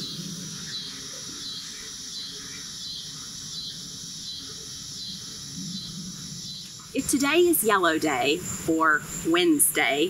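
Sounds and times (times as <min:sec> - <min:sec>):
faint bird calls: 0:00.0 - 0:07.0
insects chirring: 0:00.0 - 0:10.0.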